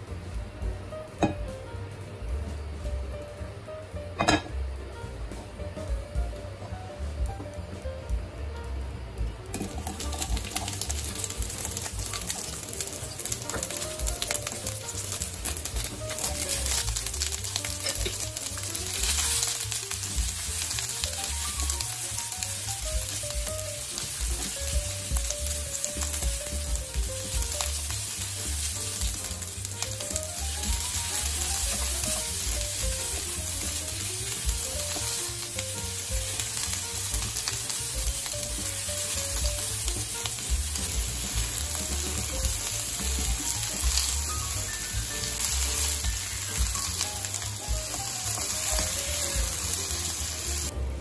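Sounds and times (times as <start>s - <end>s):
vegetables sizzling in oil: 0.0s - 51.0s.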